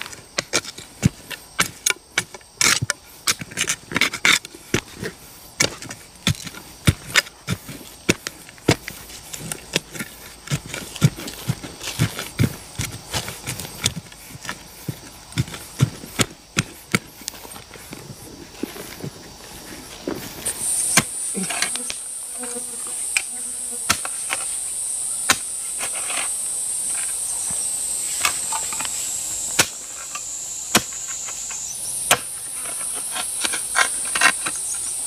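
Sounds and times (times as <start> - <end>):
loose earth crumbling: 0.0 - 23.2
machete chopping into soil: 20.4 - 24.5, 25.2 - 26.3, 28.2 - 34.5.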